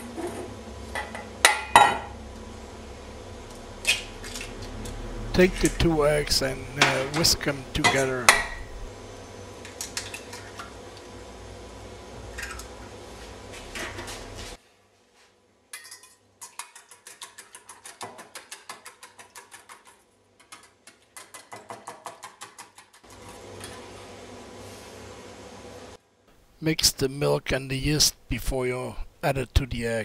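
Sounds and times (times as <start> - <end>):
whisk clinking in metal bowl: 15.8 - 23.0.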